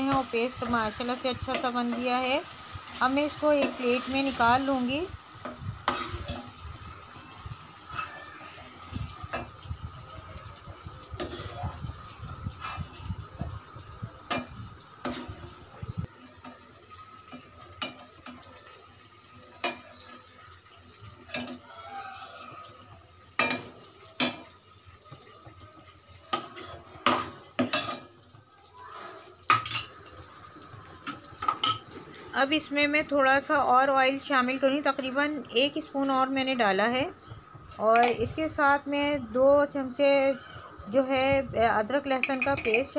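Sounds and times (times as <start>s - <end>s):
metal ladle scraping a pan: 0.0s - 6.6s, 11.1s - 11.6s, 12.5s - 13.1s, 26.3s - 28.2s
oil sizzling: 0.0s - 42.9s.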